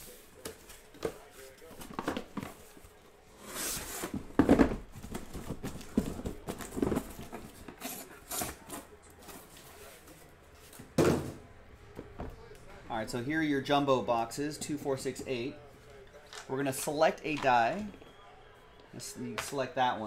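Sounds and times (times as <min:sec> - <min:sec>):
boxes thumping on table: 0:04.0 - 0:07.6, 0:11.0 - 0:11.4
cardboard rustling and knocks: 0:04.0 - 0:07.6.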